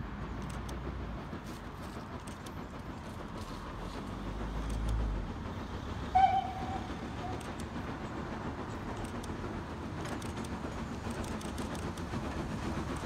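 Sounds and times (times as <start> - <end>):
distant steam engine rumbling: 0.0 - 13.0
train whistle blast: 6.1 - 7.5.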